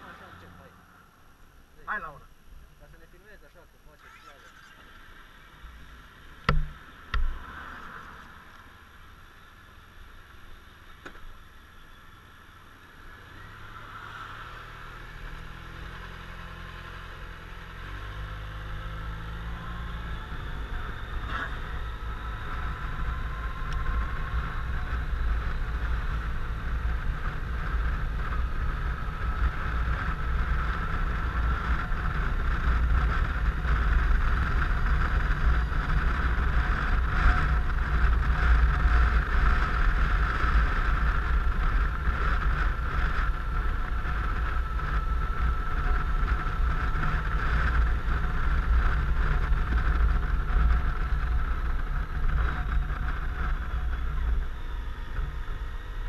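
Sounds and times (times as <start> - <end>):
sharp knocks: 6.5 - 7.3
scooter engine accelerating: 13.0 - 56.0.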